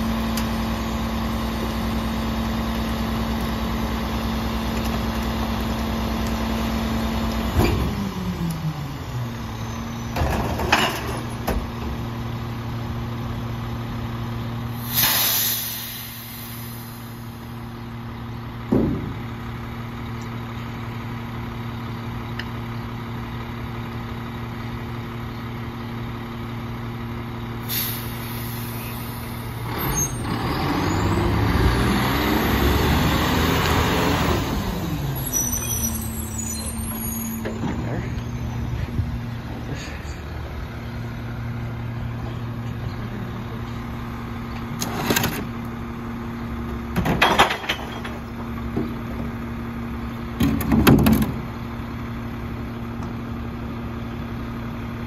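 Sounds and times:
garbage truck engine: 0:00.0 - 0:55.0
air brake hisses: 0:14.8 - 0:17.3, 0:27.6 - 0:29.4.

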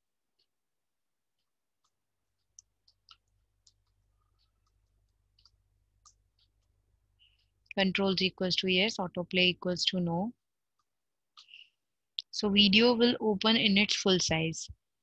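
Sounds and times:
keyboard typing: 0:01.4 - 0:10.0.

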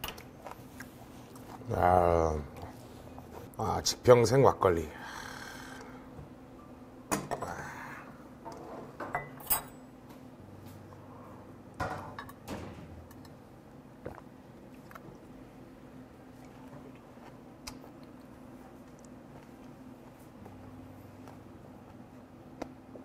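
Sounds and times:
tableware clinking: 0:09.0 - 0:09.9.

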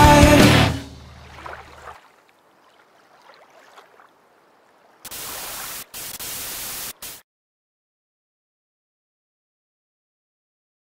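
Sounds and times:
tv static hiss: 0:05.1 - 0:07.2.

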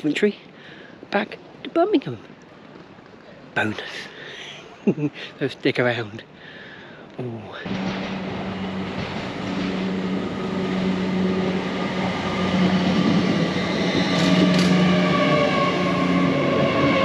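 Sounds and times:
train low hum with whining tones: 0:07.1 - 0:17.0.

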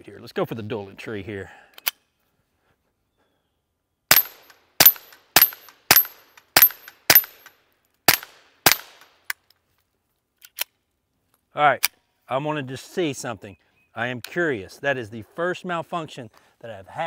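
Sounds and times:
pistol shots: 0:04.1 - 0:07.4, 0:08.1 - 0:09.0.

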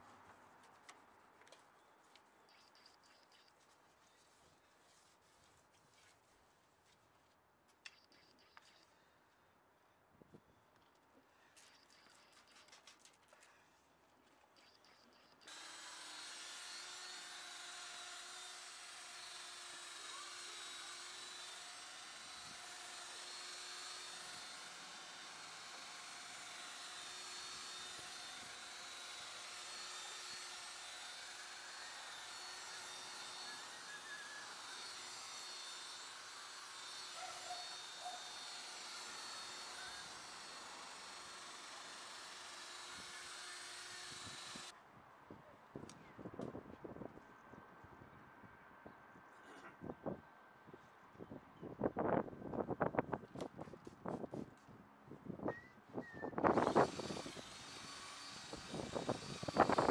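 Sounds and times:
cordless drill whining: 0:15.4 - 0:44.7, 0:56.1 - 0:59.9.

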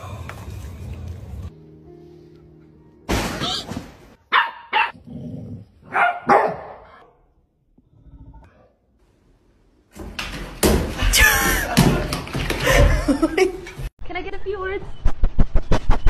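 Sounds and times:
dog barking: 0:04.3 - 0:05.0, 0:05.9 - 0:07.2.

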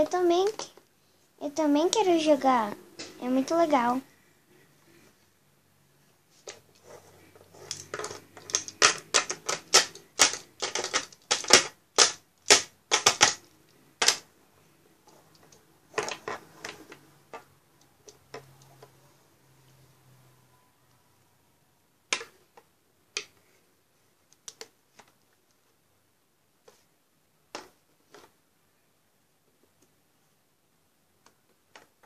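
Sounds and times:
plastic toys clicking and knocking: 0:00.0 - 0:00.9, 0:07.6 - 0:14.3, 0:15.2 - 0:19.0, 0:24.3 - 0:25.3, 0:27.5 - 0:28.4, 0:31.2 - 0:32.0.

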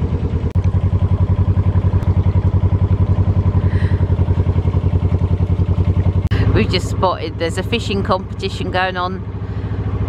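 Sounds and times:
diesel engine chugging: 0:00.0 - 0:10.0.

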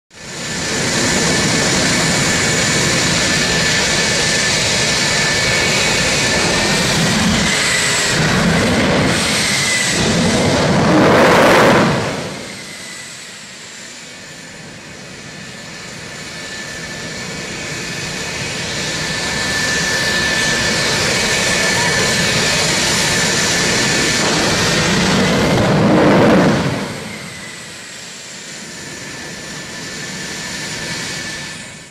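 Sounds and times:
high-pitched jet whines: 0:00.1 - 0:31.9
jet engine roar: 0:00.1 - 0:31.9.

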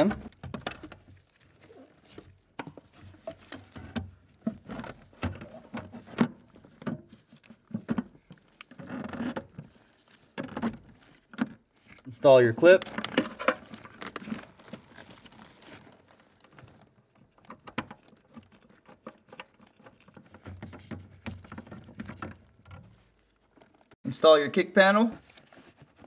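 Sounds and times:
metal case knocks and scrapes: 0:17.6 - 0:23.0.

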